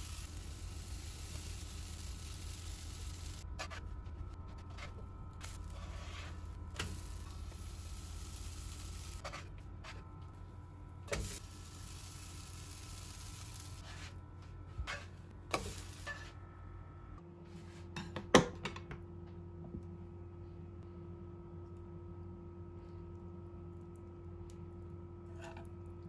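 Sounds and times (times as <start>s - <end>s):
batter sizzling in a frying pan: 0.0s - 3.5s, 5.4s - 9.2s, 11.1s - 14.1s, 15.6s - 16.3s.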